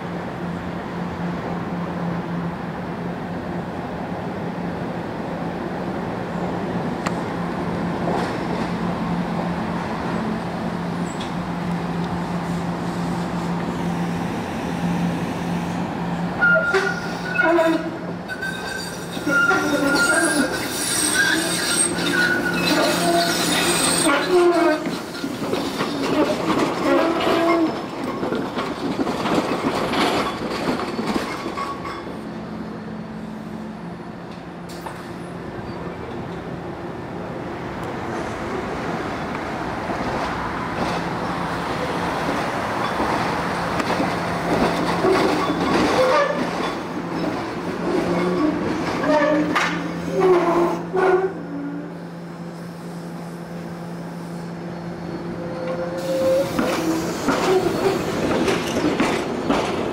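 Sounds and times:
trolley wheels squealing on track: 16.4s - 28.6s, 29.2s - 32.4s, 44.7s - 51.8s, 54.2s - 59.6s.

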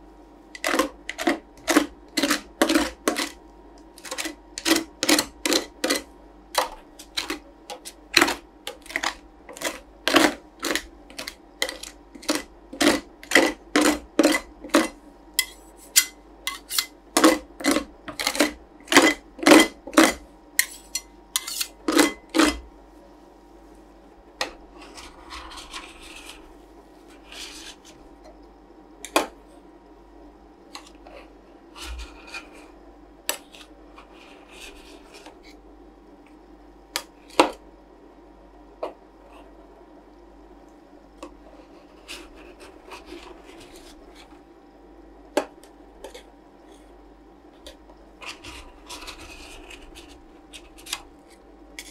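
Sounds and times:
spatula scraping frozen sheet: 0.6s - 3.4s, 4.0s - 22.6s, 24.7s - 28.0s, 30.8s - 35.6s, 41.5s - 44.4s, 48.2s - 51.9s.

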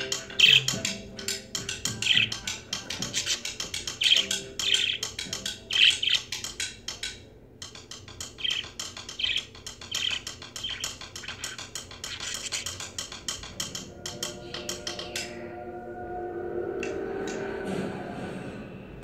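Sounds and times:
budgerigar chattering: 0.0s - 0.9s, 1.9s - 6.6s, 8.4s - 13.0s.

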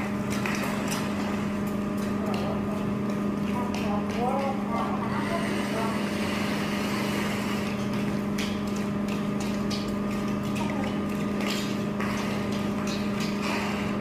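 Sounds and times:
low machine hum: 0.0s - 14.0s
squeegees scraping concrete floor: 3.5s - 8.8s, 9.5s - 14.0s.

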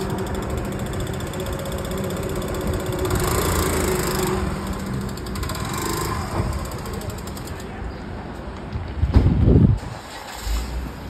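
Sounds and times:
small engine idling: 0.0s - 7.8s.

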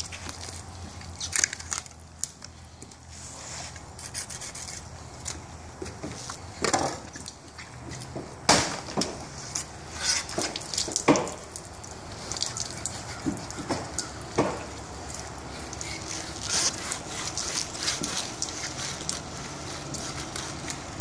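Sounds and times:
sharp knocks: 13.2s - 14.7s
knife slicing fish fillets: 15.8s - 20.8s.

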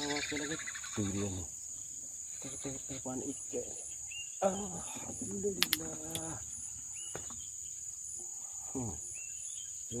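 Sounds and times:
high-pitched insect chorus: 0.0s - 10.0s
sharp clicks: 5.6s - 6.3s.

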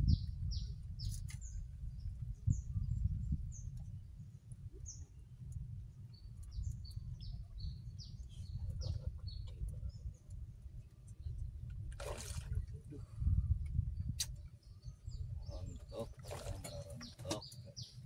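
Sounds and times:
small birds chirping: 0.0s - 11.7s, 14.0s - 18.0s
steady low rumble: 0.0s - 18.0s
fish splash: 12.0s - 12.6s.

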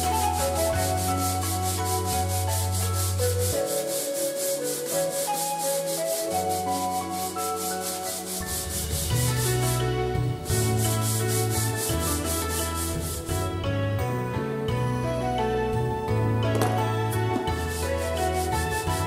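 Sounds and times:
sandpaper rubbing wood: 0.0s - 13.4s, 16.6s - 19.0s
background music: 0.0s - 19.0s.

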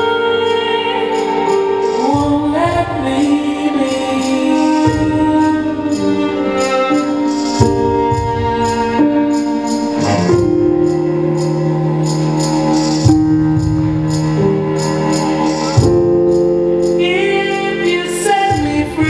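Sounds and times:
light high percussion: 9.6s - 14.2s
held melody notes: 9.8s - 11.3s.

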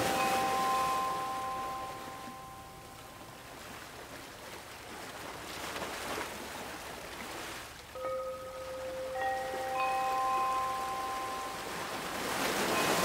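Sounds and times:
held chime notes: 0.0s - 3.1s, 8.0s - 11.9s
ocean waves washing on shore: 0.0s - 13.0s.

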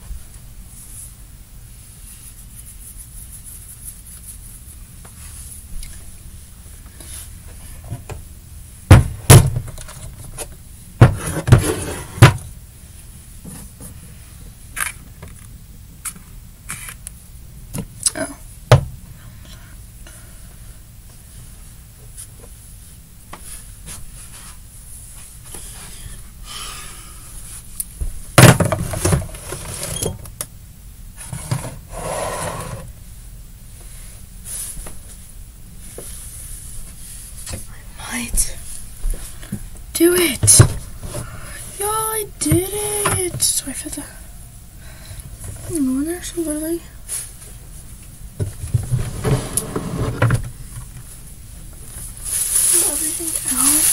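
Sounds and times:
plastic objects knocking and thumping: 8.9s - 11.6s, 28.4s - 29.6s
rustling: 51.0s - 53.9s.

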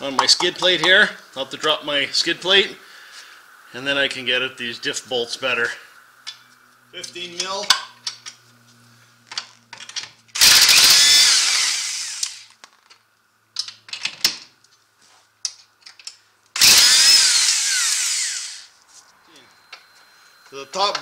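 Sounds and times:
power tool spinning socket: 9.8s - 12.6s, 16.6s - 18.7s.

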